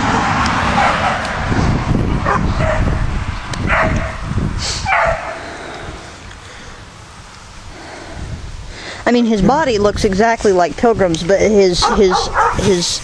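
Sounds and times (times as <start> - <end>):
low microphone rumble: 0.0 - 13.0
dog barking and yipping: 0.7 - 1.3, 2.2 - 3.0, 3.6 - 4.2, 4.9 - 5.4, 11.8 - 12.8.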